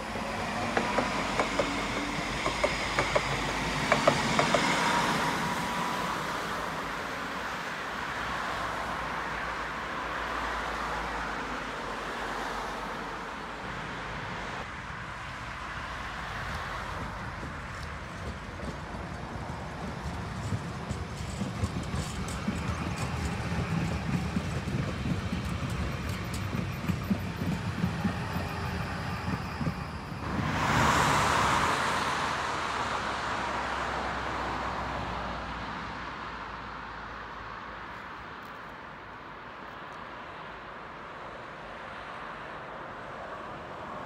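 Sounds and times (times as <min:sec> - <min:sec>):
sharp clicks of tram wheels: 0:00.0 - 0:05.6, 0:16.4 - 0:30.5
tram whine: 0:00.0 - 0:08.0, 0:16.0 - 0:35.3
tram rolling rumble: 0:00.0 - 0:37.8.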